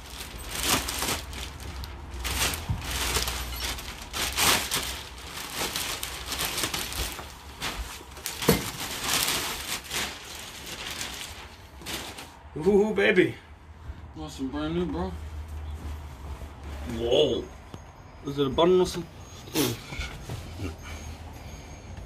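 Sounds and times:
plastic packaging crinkling: 0.0 - 12.4.

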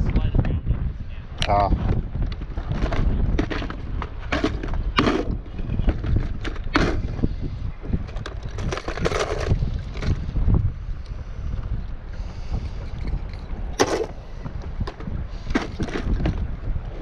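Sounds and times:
low wind rumble on microphone: 0.0 - 17.0
plastic box rummaging and clattering: 2.6 - 7.1, 8.1 - 10.2, 13.8 - 14.2, 14.9 - 16.5.

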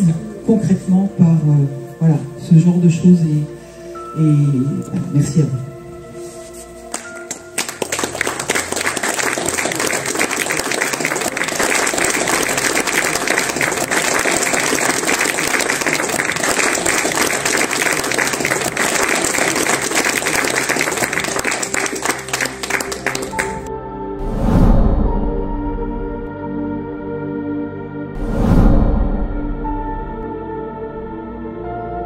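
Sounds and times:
audience applause: 6.9 - 23.7.

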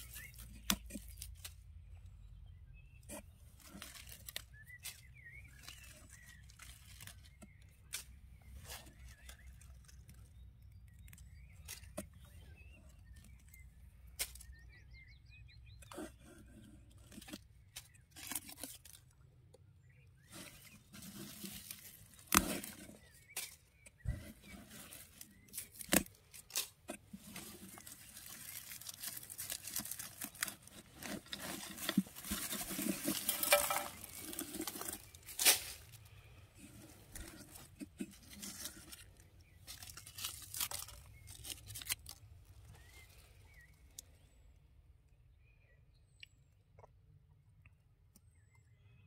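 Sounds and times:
hands rustling through leaves: 3.6 - 10.3, 20.2 - 43.7.

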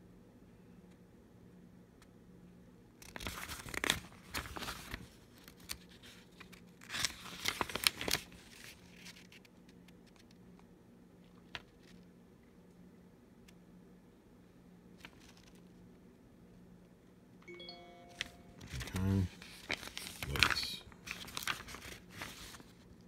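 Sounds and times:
paper pages turning: 3.0 - 10.4, 15.0 - 15.8, 18.1 - 23.0.

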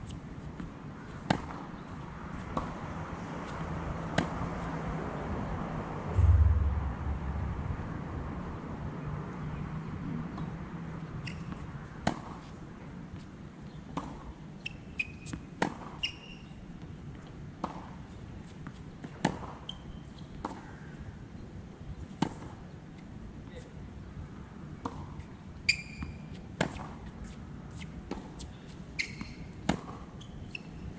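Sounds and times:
low rumble: 6.1 - 9.2.

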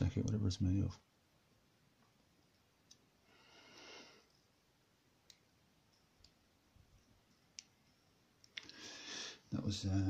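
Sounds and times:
faint breath: 3.2 - 4.4, 8.6 - 9.5.

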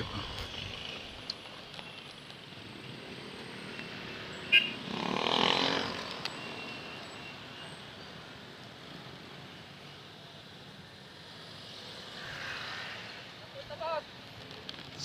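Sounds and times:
road hum: 0.0 - 15.0
passing vehicle engine: 3.1 - 6.3.

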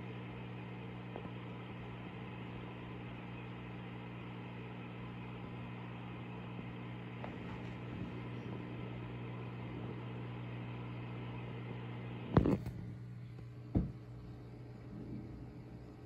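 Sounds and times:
aquarium pump humming: 0.0 - 16.0.

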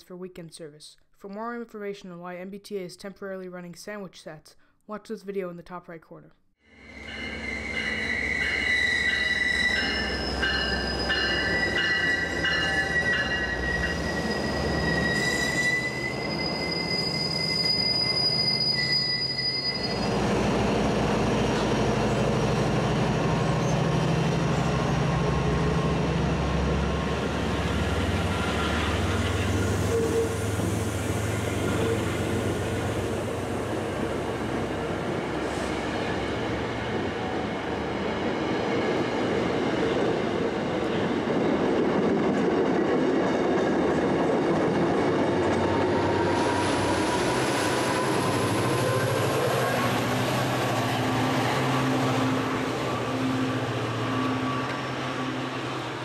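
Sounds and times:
train wheels squealing: 6.8 - 20.2, 27.6 - 32.9, 53.0 - 55.6
train coaches rumbling: 6.9 - 56.0.

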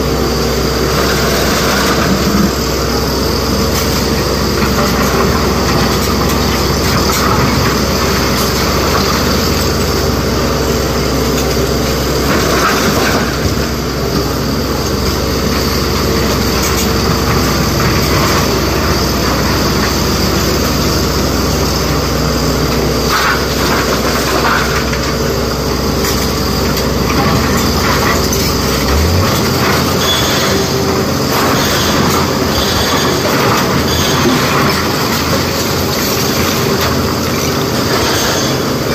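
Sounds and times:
excavator diesel engine running: 0.0 - 38.9
deep low hum: 26.5 - 31.2.

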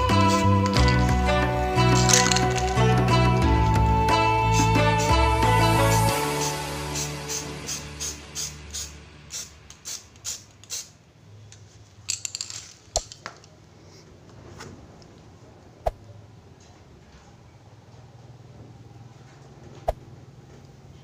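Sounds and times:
hard objects clicking: 0.1 - 1.1, 1.8 - 3.0, 11.5 - 13.6.

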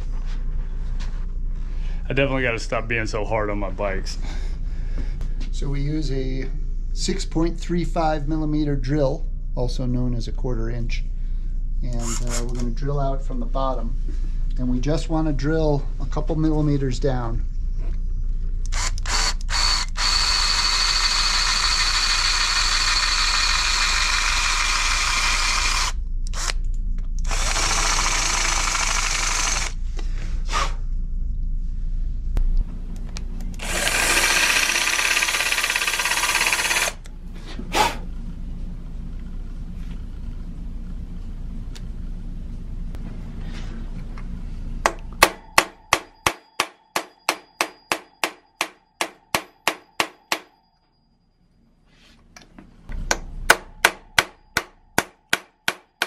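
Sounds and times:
cordless drill drilling metal: 18.7 - 26.6, 27.2 - 29.8, 33.6 - 37.0
hammer tapping pin punch: 44.9 - 50.5.

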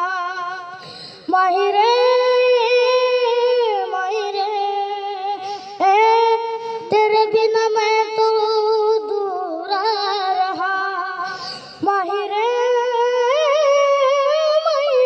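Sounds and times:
boy singing into microphone: 0.0 - 15.0
breaths: 0.7 - 1.3, 5.3 - 5.8, 6.5 - 6.9, 11.2 - 11.8.

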